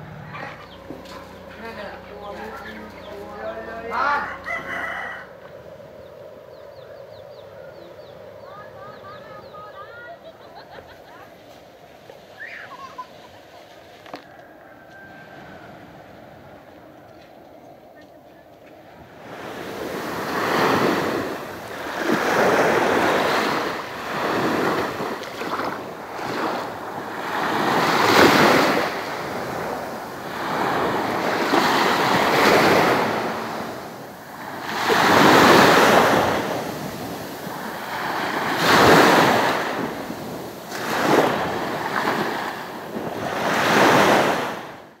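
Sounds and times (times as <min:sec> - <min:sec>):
small waves washing onto sand: 0:19.0 - 0:45.0.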